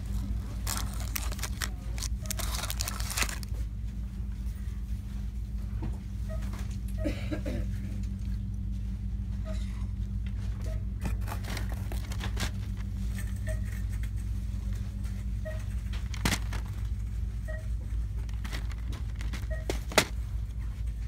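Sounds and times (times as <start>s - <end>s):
candy box crinkling and clicking: 0.0s - 3.6s, 11.0s - 13.4s, 15.9s - 17.0s, 18.2s - 20.2s
low store hum: 0.0s - 21.0s.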